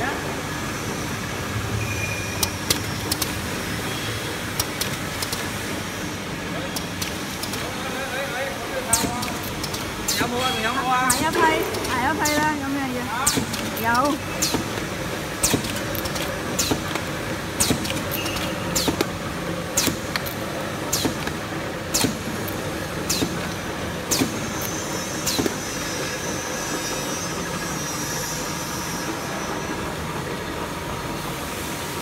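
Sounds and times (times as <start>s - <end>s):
machine humming: 8.4s - 31.2s.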